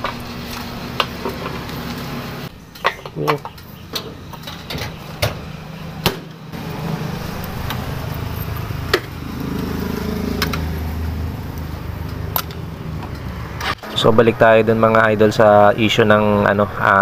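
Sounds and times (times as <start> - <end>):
motorcycle engine starting and idling: 3.8 - 13.9.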